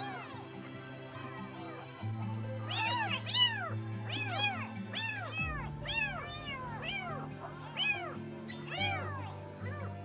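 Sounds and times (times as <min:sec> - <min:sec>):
background music: 0:00.0 - 0:10.0
kitten mewing: 0:02.7 - 0:10.0.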